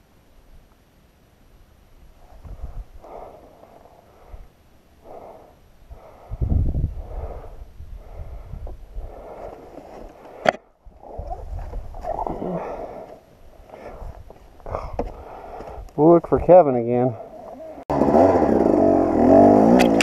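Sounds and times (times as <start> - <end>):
person breathing hard: 2.5 - 10.5, 12.5 - 15.9
sharp click: 19.8 - 20.0.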